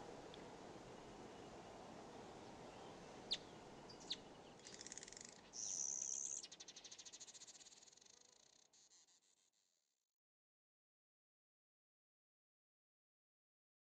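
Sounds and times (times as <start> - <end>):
short sharp bird chirps: 3.3 - 9.0.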